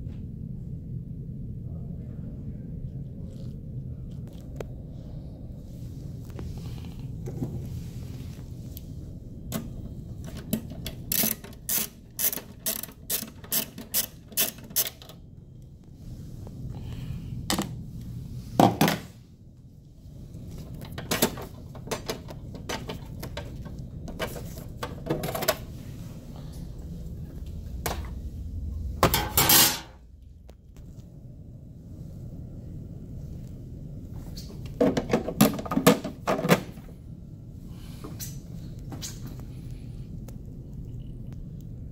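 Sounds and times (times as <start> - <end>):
low steady hum: 0.0 - 41.9
tools and metal parts clicking: 10.3 - 15.2.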